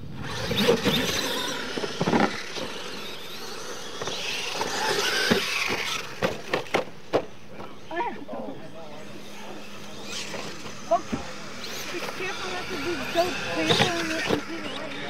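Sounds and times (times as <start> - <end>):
toy truck motors revving: 0.0 - 8.0, 8.8 - 15.0
tyres churning dirt: 0.0 - 8.1.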